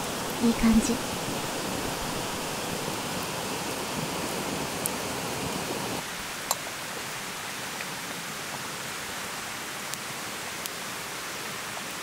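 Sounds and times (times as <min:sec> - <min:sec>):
campfire hissing: 0:00.0 - 0:07.8, 0:09.3 - 0:12.0
fire crackles and pops: 0:01.0 - 0:06.7.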